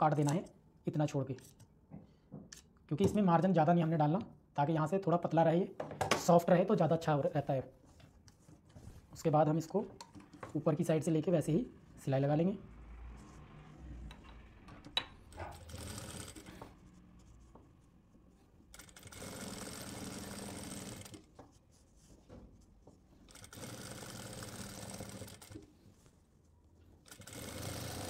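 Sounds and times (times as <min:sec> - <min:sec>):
sewing machine stitching: 0:14.3 - 0:16.8, 0:18.7 - 0:21.3, 0:23.3 - 0:25.6, 0:27.0 - 0:28.0.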